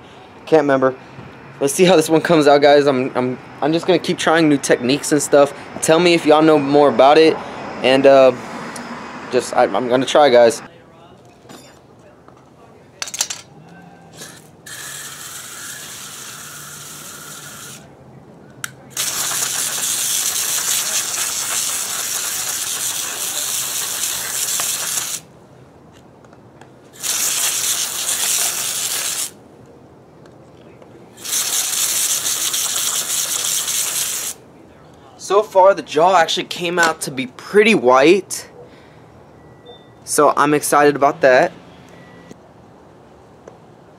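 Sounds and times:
hose nozzle spraying water: 0:14.2 - 0:17.8, 0:19.0 - 0:25.3, 0:27.0 - 0:29.4, 0:31.2 - 0:34.4.

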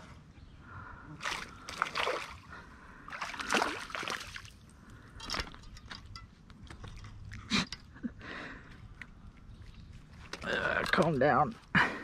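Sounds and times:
creek water splashing: 0:01.2 - 0:04.7.

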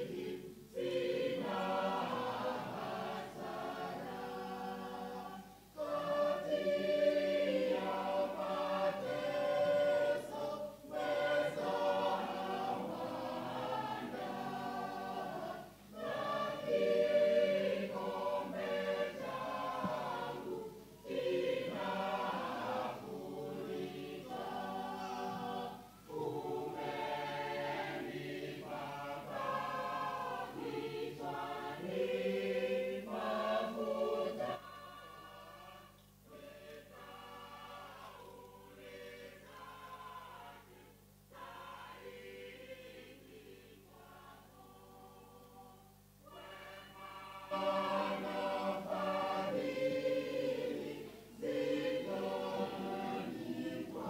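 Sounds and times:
choir singing a hymn: 0:00.0 - 0:54.0.

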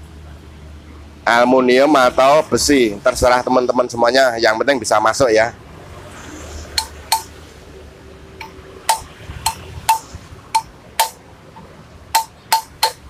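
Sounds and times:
hammer tapping on metal tube: 0:06.8 - 0:07.3, 0:08.4 - 0:11.2, 0:12.1 - 0:13.0.

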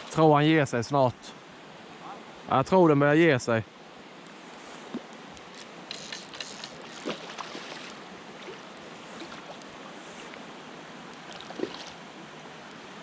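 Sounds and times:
running water: 0:00.0 - 0:00.8, 0:04.2 - 0:12.9
fish splashing: 0:05.5 - 0:10.4, 0:11.2 - 0:12.0.

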